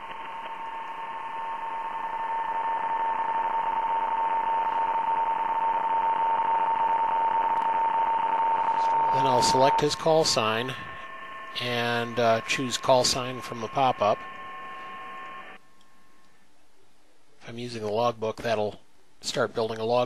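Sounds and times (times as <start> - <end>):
radio band hiss: 0.0 - 15.6
higher signal tone: 0.0 - 15.7
steady mid-pitched signal tone: 0.0 - 16.2.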